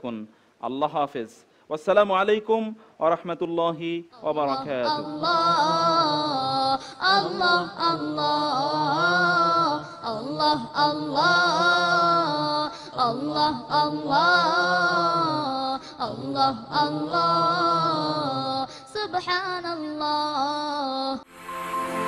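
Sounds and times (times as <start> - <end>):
person singing devotional chant: 4.2 - 21.3.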